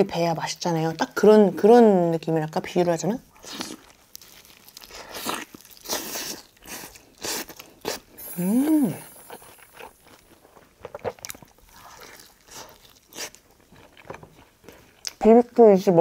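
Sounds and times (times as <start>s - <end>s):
crunching and chewing fried chicken: 3.2s - 8.2s, 9.4s - 15.9s
person humming: 8.2s - 9.5s.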